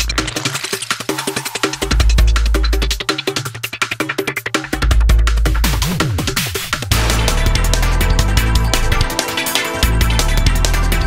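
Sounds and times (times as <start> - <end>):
electronic dance music: 0.0 - 2.8.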